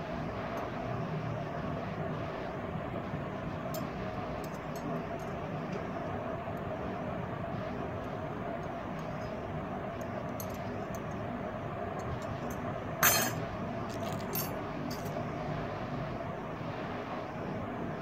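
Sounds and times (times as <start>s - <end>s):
metal bracelets clinking: 12.2s - 15.2s.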